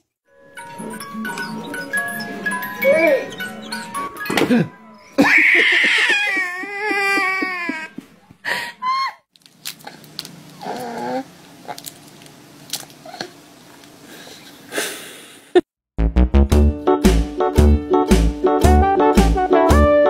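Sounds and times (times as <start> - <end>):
baby crying: 5.1 - 8.0
baby whimpering: 10.6 - 11.3
loud rhythmic music: 16.0 - 20.0.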